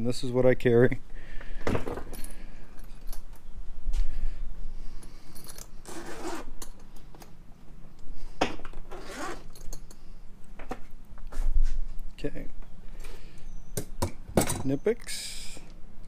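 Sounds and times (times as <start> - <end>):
zipper pulled open: 5.8 - 6.5, 8.9 - 9.6.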